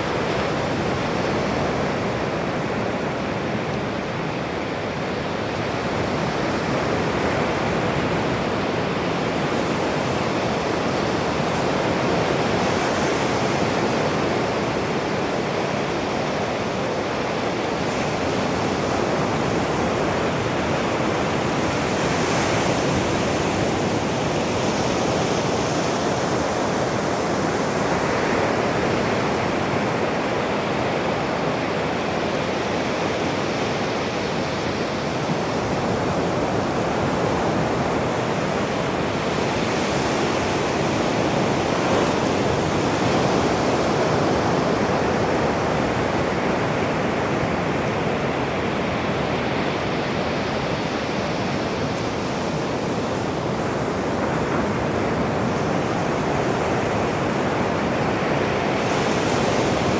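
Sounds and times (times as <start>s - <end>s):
ocean surf breaking on beach: 0.0s - 59.9s.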